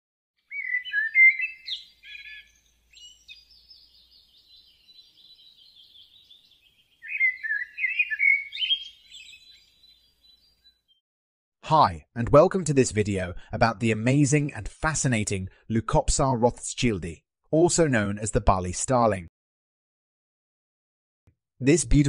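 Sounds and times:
starlings chirping and whistling: 0.4 - 11.0
fast bird chattering: 0.5 - 3.1, 7.0 - 9.5.

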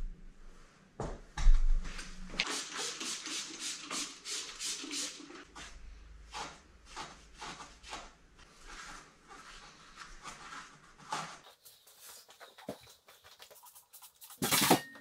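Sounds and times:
scrubbing a wheel by hand: 2.4 - 14.3.

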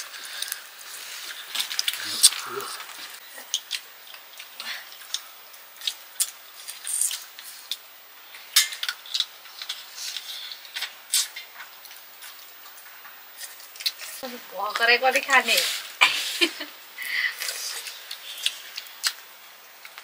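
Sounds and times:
faint hiss: 0.0 - 3.5, 13.0 - 20.0
wet chewing smacks and clicks: 0.1 - 7.9, 13.4 - 14.2, 17.4 - 20.0.

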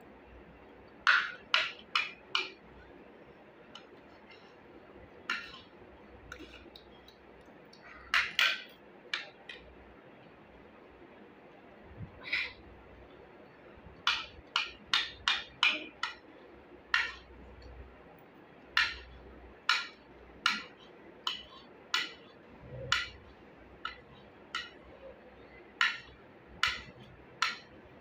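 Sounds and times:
utensils tapping on plate: 1.0 - 2.8, 5.2 - 9.7, 14.0 - 16.3, 16.9 - 17.8, 18.7 - 25.0, 25.7 - 27.9.

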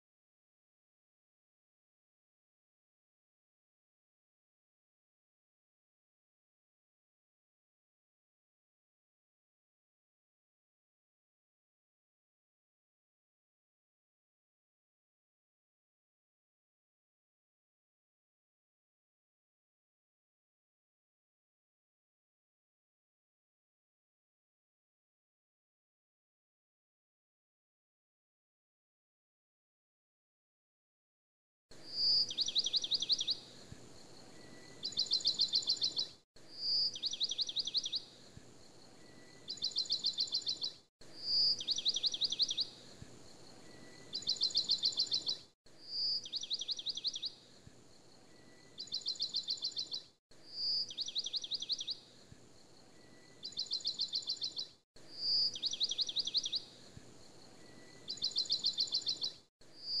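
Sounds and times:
bird trill: 31.8 - 33.5, 34.2 - 38.1, 38.9 - 42.8, 43.4 - 47.4, 48.2 - 52.1, 52.8 - 56.8, 57.5 - 60.0.

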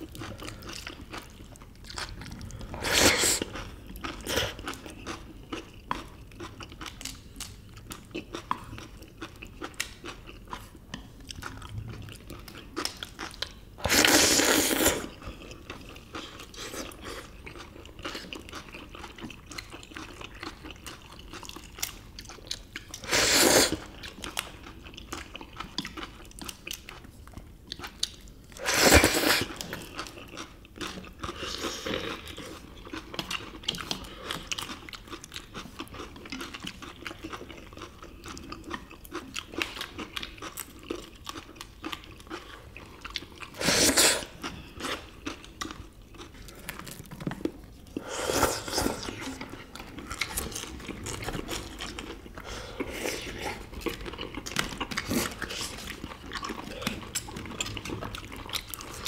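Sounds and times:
chewing and crunching: 0.0 - 59.0
noodle slurping: 13.8 - 15.1, 23.0 - 24.0, 28.6 - 29.6, 43.5 - 44.5.

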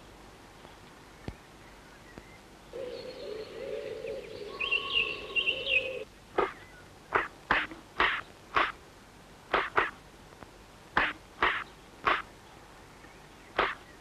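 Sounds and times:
chickadee calling: 2.8 - 8.8, 11.0 - 12.3, 13.5 - 14.0.

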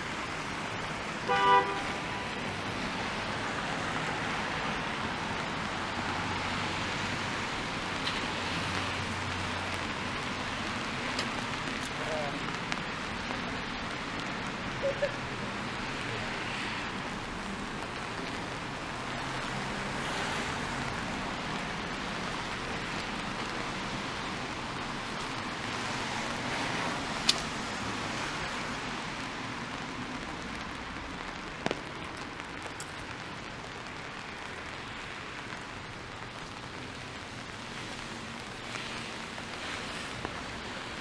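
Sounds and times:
car tyres hissing on wet road: 0.0 - 41.0
rain on a street: 0.0 - 41.0.

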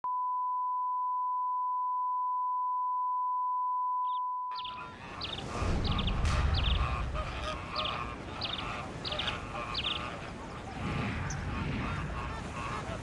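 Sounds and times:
birds chirping: 4.0 - 13.0.

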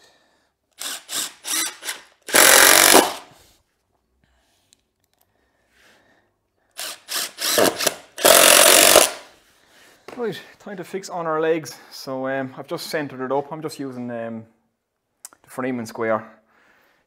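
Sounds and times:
cordless drill driving screws: 0.8 - 3.3, 6.7 - 9.3.

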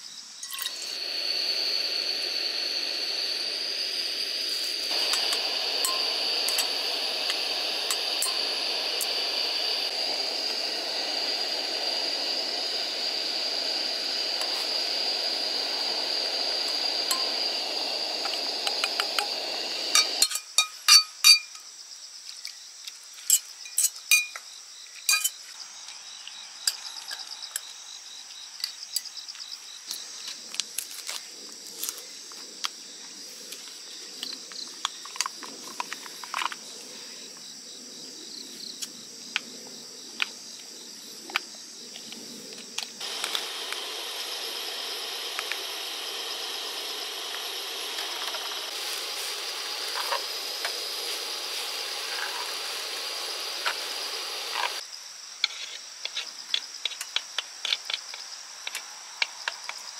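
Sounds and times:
gas stove hissing: 0.0 - 21.5, 30.3 - 54.8
metal tongs clinking on pot: 0.4 - 0.8.

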